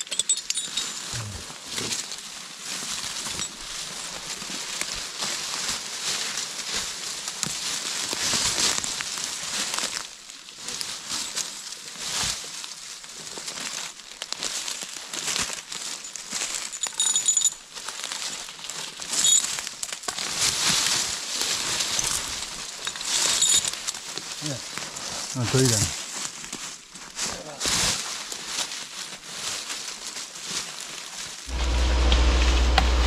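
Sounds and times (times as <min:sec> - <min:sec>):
steel chain clinking: 0:00.0 - 0:01.4, 0:16.6 - 0:18.3, 0:19.1 - 0:19.6, 0:21.9 - 0:24.0
dry leaves crunching underfoot: 0:01.0 - 0:16.7, 0:17.6 - 0:33.0.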